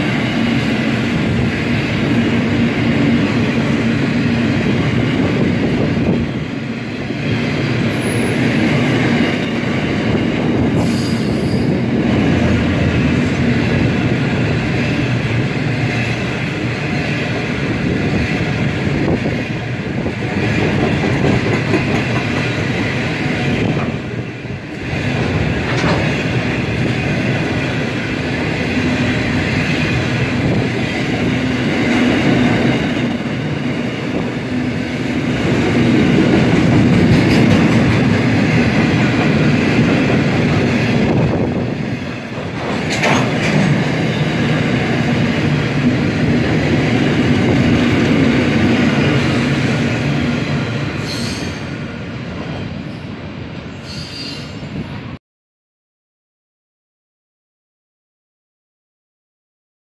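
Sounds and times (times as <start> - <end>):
train wheels rumbling on rails: 0.0 - 55.2.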